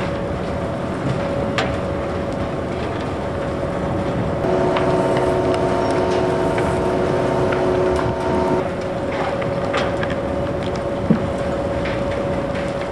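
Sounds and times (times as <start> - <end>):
whining machine tones: 4.4 - 8.6
excavator mechanical drone: 4.4 - 8.8.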